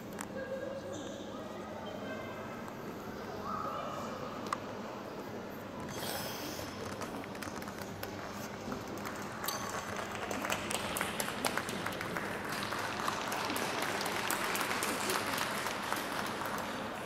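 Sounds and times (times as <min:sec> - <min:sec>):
audience applauding: 0:08.9 - 0:17.0.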